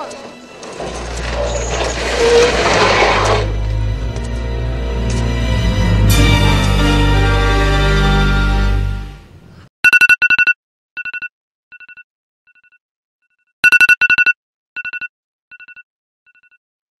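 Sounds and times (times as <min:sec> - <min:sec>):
phone alarm beeps: 0:09.8 - 0:12.8, 0:13.6 - 0:16.6.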